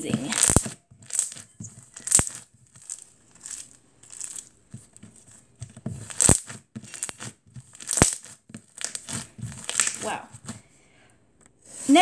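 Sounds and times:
sharp pops: 0:00.0 - 0:02.5, 0:06.0 - 0:10.5
slime squished by hand crackling: 0:00.1 - 0:04.4, 0:06.0 - 0:10.6.

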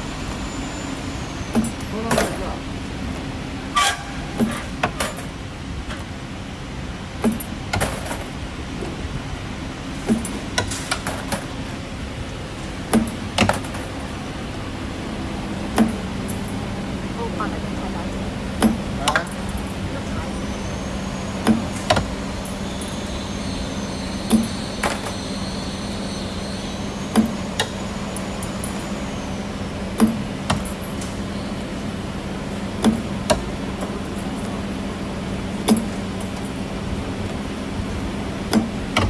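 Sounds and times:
sharp metallic knocks: 0:07.2 - 0:08.2, 0:15.7 - 0:16.4, 0:18.6 - 0:19.7, 0:30.0 - 0:31.0, 0:35.7 - 0:36.0.

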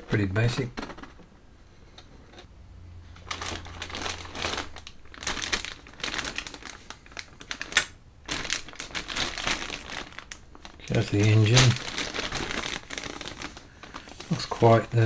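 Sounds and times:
sharp plastic crackle: 0:00.0 - 0:01.3, 0:03.2 - 0:15.0
plastic bag crinkling: 0:03.2 - 0:15.0.

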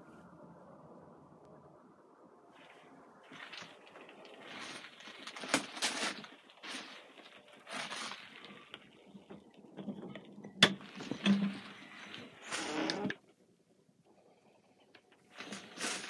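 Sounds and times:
rustles and knocks of movement: 0:02.6 - 0:13.4, 0:14.1 - 0:16.0.

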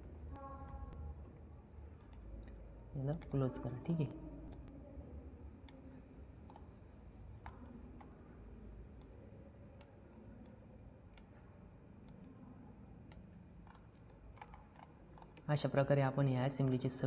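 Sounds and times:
computer mouse clicking: 0:00.0 - 0:03.8, 0:05.6 - 0:12.4, 0:13.0 - 0:15.5
faint low hum: 0:00.0 - 0:17.0.

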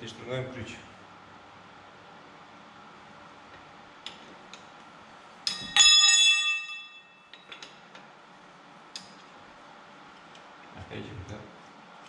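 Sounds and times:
bell-like metallic ring: 0:05.5 - 0:07.4.

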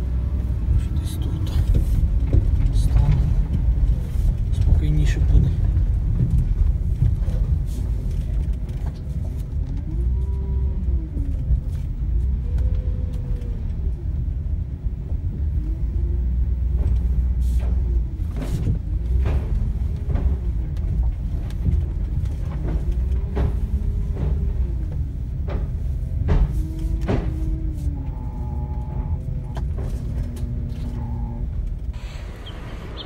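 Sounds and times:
vehicle engine running: 0:13.7 - 0:33.0.

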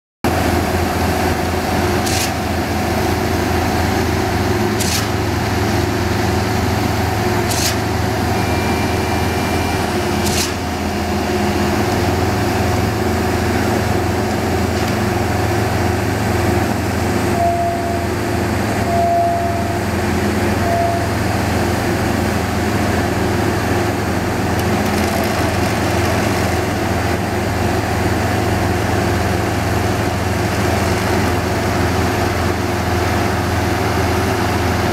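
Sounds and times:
diesel engines droning: 0:00.3 - 0:34.9
short beeps: 0:07.5 - 0:10.0, 0:17.3 - 0:18.2, 0:18.8 - 0:19.9, 0:20.6 - 0:21.2.

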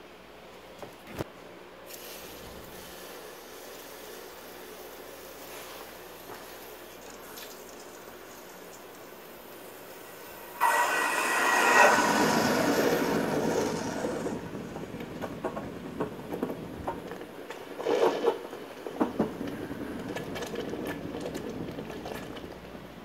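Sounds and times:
hot metal hissing in water: 0:01.9 - 0:15.2.

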